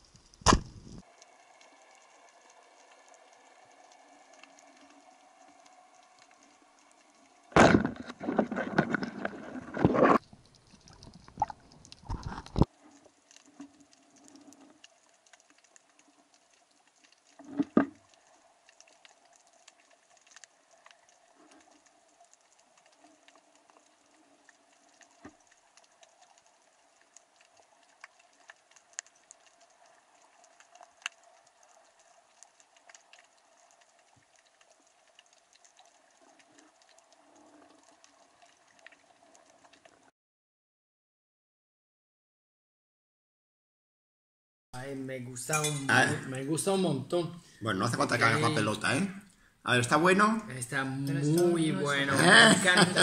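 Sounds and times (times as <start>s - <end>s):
faint underwater clicks crackle: 0.0s - 40.1s.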